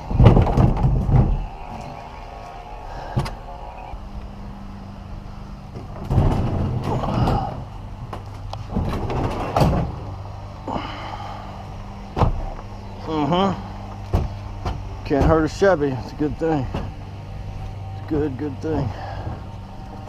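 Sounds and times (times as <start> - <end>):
steady low hum: 0.0 - 20.0
sharp knocks: 14.1 - 15.4.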